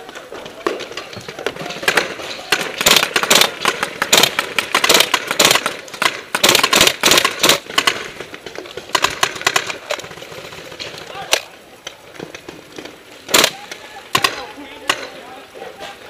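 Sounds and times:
airsoft rifle firing bursts: 1.8 - 11.5, 13.3 - 15.1.

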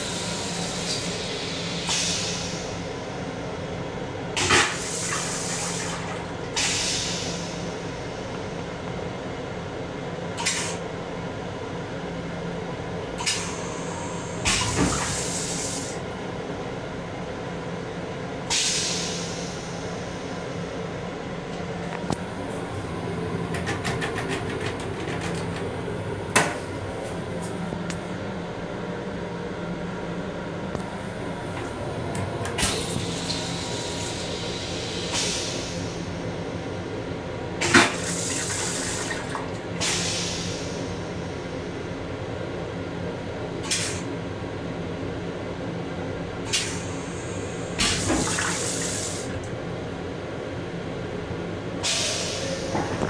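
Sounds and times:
railcar low hum: 0.0 - 53.0
toilet flush water gushing: 37.6 - 40.0, 47.7 - 49.4.

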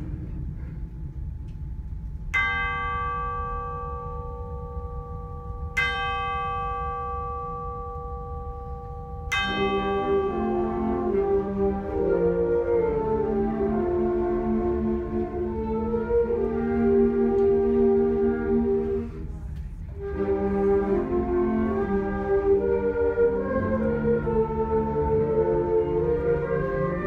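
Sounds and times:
band winds holding low notes: 0.0 - 27.0
tubular bells struck: 2.1 - 13.4.

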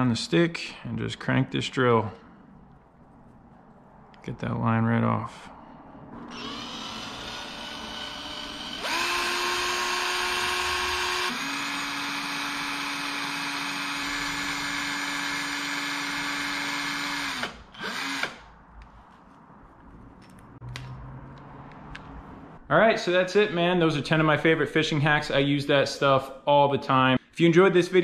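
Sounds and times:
cordless drill motor whine: 6.3 - 18.4.

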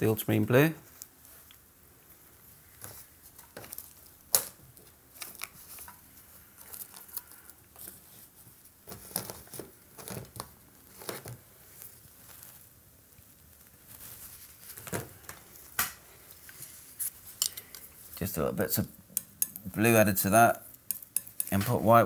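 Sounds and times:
soft scrapes and rustles: 0.8 - 4.1, 5.2 - 18.3.

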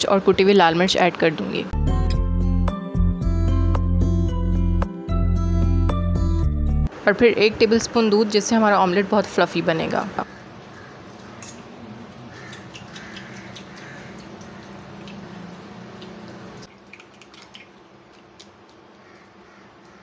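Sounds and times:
fork clicking against bowl: 11.2 - 11.7, 12.4 - 15.2
fork beating eggs wet squishing: 12.0 - 20.0.

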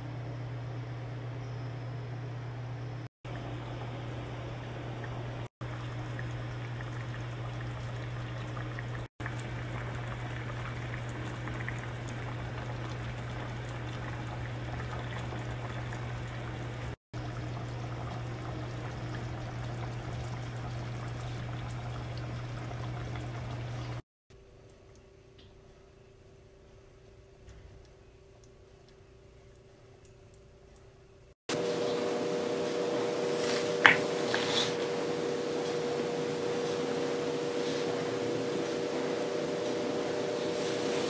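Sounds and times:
constant low hum: 0.0 - 32.2
stew bubbling in a pot: 3.3 - 24.0.

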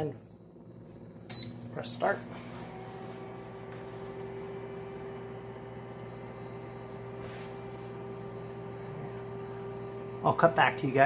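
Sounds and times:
convection fan humming: 0.0 - 11.0.

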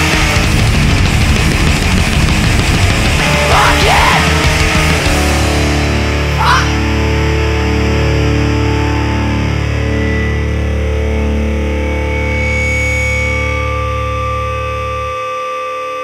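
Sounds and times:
drums: 0.0 - 9.1
distorted guitar: 0.0 - 16.0.

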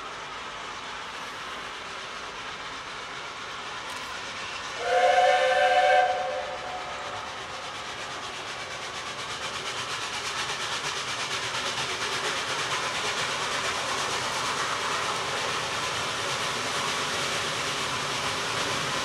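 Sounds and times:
steam locomotive exhaust chuffs: 0.0 - 19.0
steam locomotive chime whistle: 4.8 - 7.2.

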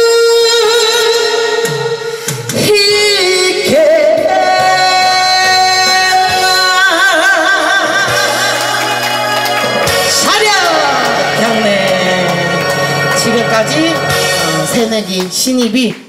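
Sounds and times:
woman singing into a microphone: 0.0 - 15.0
backing track music: 0.0 - 16.0.

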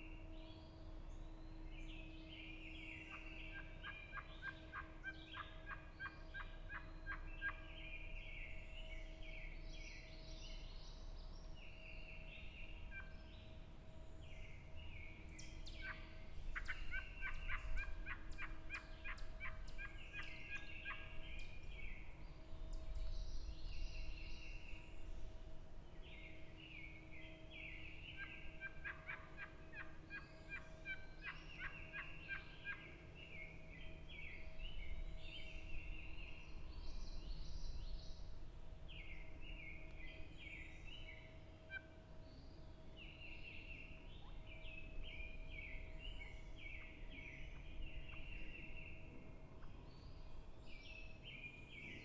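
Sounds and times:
songbirds singing: 0.0 - 52.0
turkey call yelps: 28.6 - 32.8.

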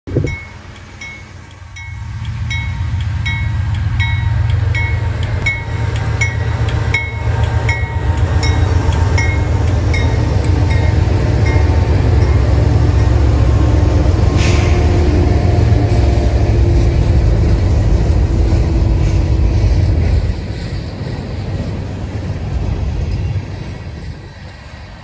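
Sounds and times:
diesel locomotive engine rumble: 0.0 - 25.0
locomotive bell ringing: 0.2 - 17.7.

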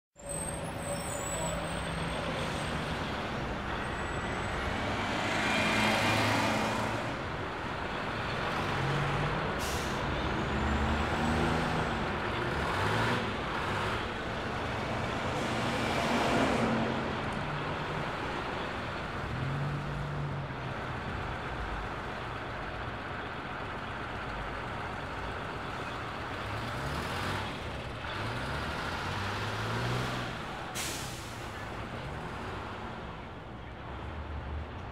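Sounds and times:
bus engines running: 0.2 - 34.9
traffic rumble: 0.2 - 34.9
air brakes hissing: 9.6 - 10.1, 30.7 - 31.6.

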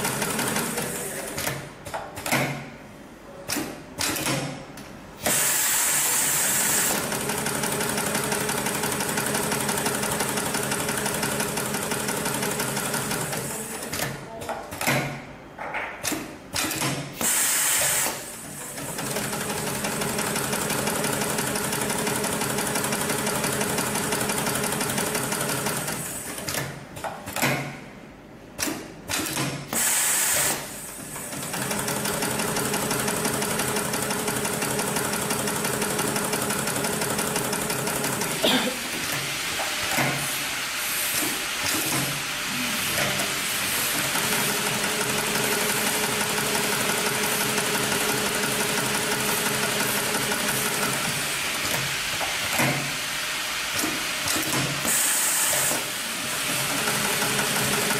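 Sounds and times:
sewing machine stitching: 43.8 - 51.8, 54.3 - 57.9.

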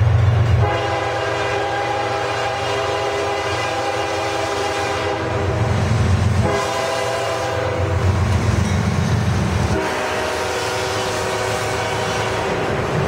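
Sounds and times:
diesel locomotive engines rumbling: 0.0 - 13.0
train air horn blasts: 0.6 - 5.7, 6.4 - 8.1, 9.7 - 12.8.

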